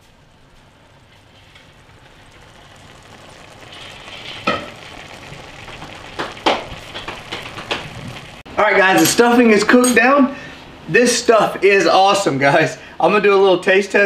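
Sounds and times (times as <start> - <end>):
food sizzling in a skillet: 0.0 - 10.4.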